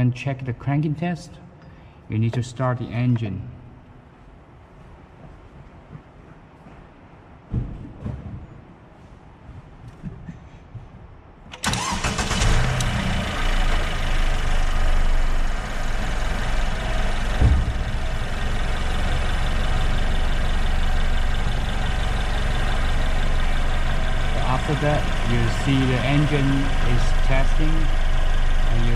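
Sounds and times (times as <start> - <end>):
car engine starting and idling: 11.5 - 28.9
thump: 17.4 - 18.0.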